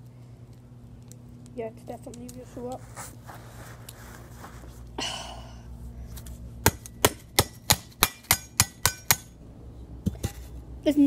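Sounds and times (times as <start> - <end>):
metal trowel striking phone: 6.6 - 9.3.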